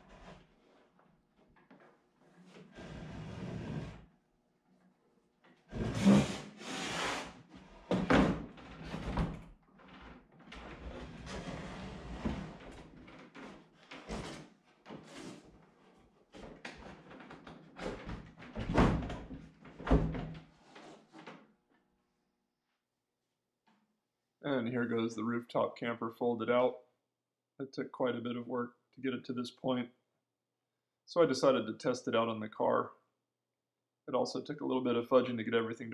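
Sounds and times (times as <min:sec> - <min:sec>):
wood scraping and rubbing: 0:05.7 - 0:07.3.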